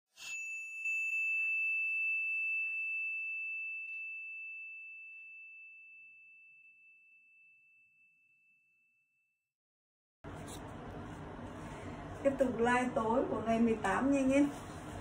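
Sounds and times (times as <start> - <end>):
bright bell ding: 0.2 - 8.8.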